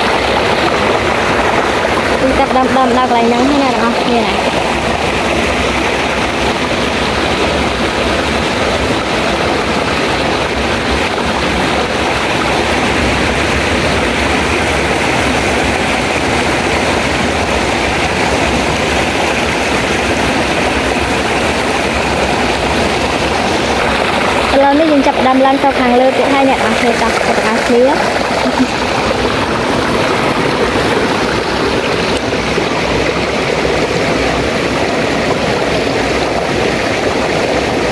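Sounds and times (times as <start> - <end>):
stream rushing over boulders: 0.0 - 37.9.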